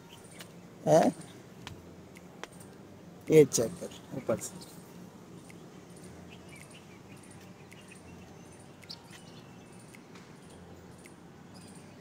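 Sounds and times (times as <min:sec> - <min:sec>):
faint high chirps: 0:03.8 - 0:12.0.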